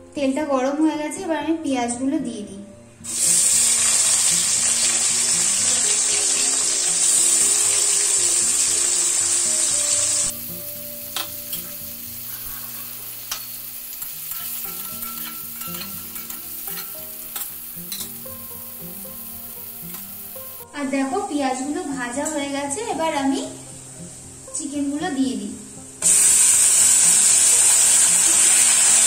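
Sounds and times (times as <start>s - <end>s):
onions sizzling in hot oil: 3.1s - 20.7s, 26.0s - 29.0s.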